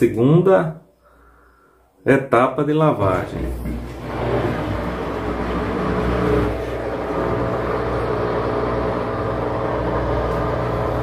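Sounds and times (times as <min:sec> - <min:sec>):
washing machine whirring hum: 0:03.0 - 0:11.0.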